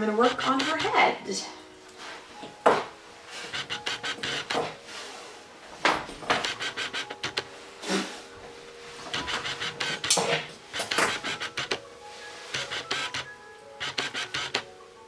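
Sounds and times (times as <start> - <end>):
brush strokes through dog fur: 3.3 - 5.5, 10.8 - 13.2.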